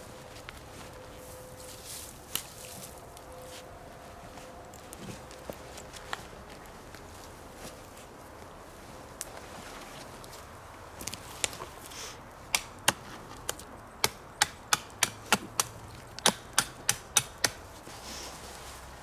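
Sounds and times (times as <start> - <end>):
blade chopping wood: 12.5 - 17.6.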